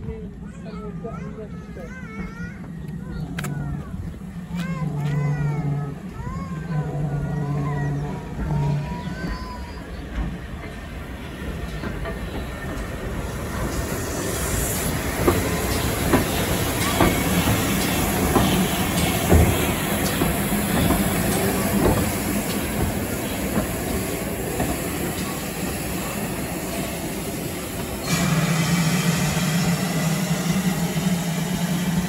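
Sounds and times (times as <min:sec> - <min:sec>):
train wheels clicking over rail joints: 0:02.1 - 0:32.0.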